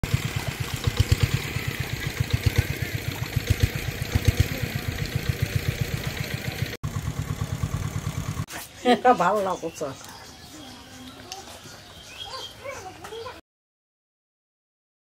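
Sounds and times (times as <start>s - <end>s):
small engine idling: 0.0s - 8.6s.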